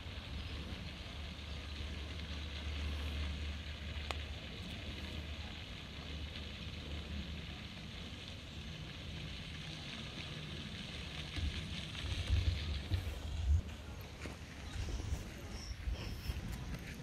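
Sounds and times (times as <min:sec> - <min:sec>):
open-air ambience hiss: 0:00.0 - 0:17.0
wind rumbling on microphone: 0:11.2 - 0:17.0.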